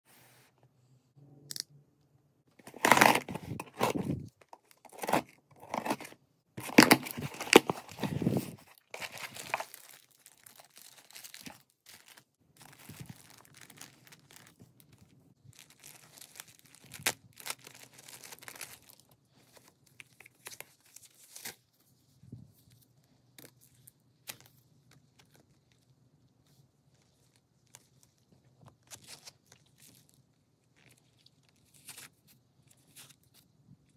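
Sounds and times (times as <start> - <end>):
packing tape and cardboard ripping: 2.6 - 12.2
plastic sleeve crinkling: 2.6 - 21.5.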